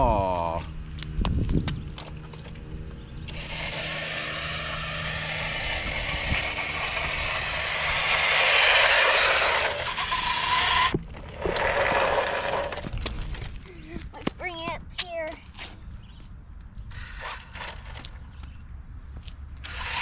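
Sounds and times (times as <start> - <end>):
tyres on rough concrete: 1.8 - 16.0, 16.8 - 20.0
toy motorcycle motor whirring: 3.3 - 12.9, 16.9 - 18.2, 19.6 - 20.0.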